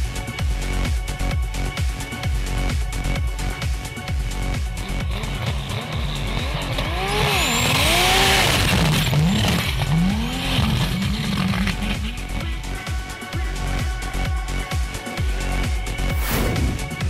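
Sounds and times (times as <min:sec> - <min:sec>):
truck engine revving: 0:04.7 - 0:12.4, 0:16.0 - 0:17.0
electronic music: 0:11.1 - 0:17.0.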